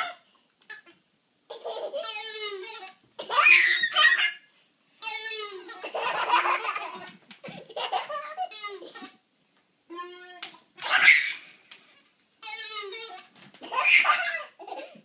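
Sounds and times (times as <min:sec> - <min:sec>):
toddler girl laughing: 0:01.5 - 0:02.2, 0:05.6 - 0:09.2, 0:13.6 - 0:15.0.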